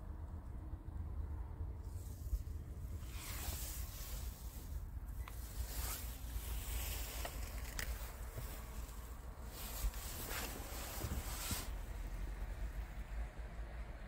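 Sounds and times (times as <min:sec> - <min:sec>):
low uneven rumble: 0:00.0 - 0:14.0
camera handling rustle: 0:07.0 - 0:08.4.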